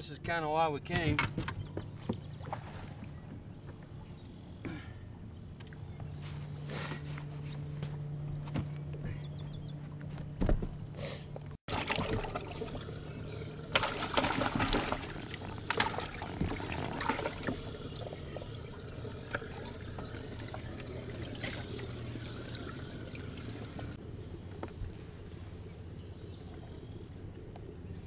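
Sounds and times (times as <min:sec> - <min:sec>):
steady low hum: 0:00.0 - 0:28.0
water sloshing and trickling: 0:00.4 - 0:04.9, 0:11.6 - 0:27.9
fish splashing: 0:11.7 - 0:24.0.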